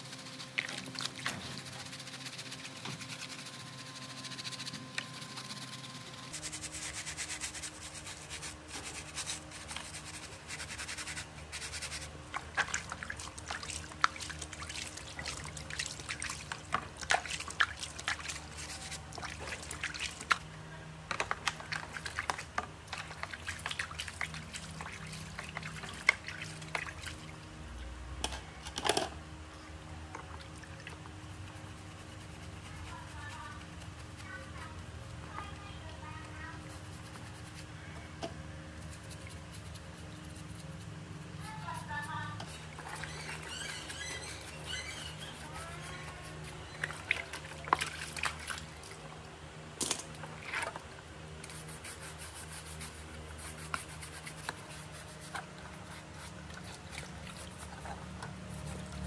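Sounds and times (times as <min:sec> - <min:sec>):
sponge scrubbing in soapy water: 0:00.0 - 0:20.5, 0:21.4 - 0:27.4, 0:30.3 - 0:37.9, 0:38.7 - 0:49.0, 0:50.3 - 0:59.0
water sloshing and splashing: 0:11.8 - 0:20.5, 0:21.2 - 0:27.5, 0:42.6 - 0:44.6, 0:46.5 - 0:51.1, 0:55.3 - 0:59.0.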